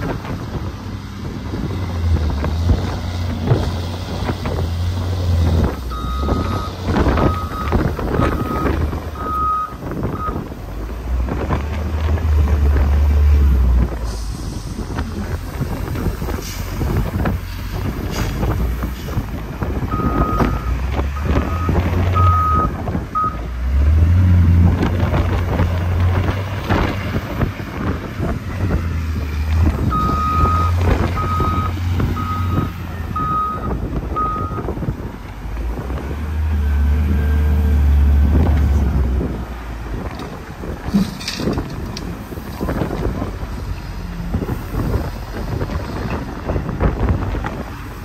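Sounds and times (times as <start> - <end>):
heavy vehicle engine rumbling: 0.0 - 48.0
reversing alarm beeps: 5.9 - 10.4, 19.9 - 23.4, 29.9 - 34.6.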